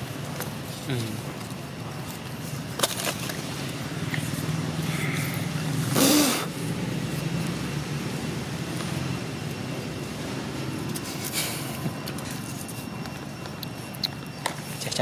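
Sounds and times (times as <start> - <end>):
low engine hum: 3.2 - 13.2.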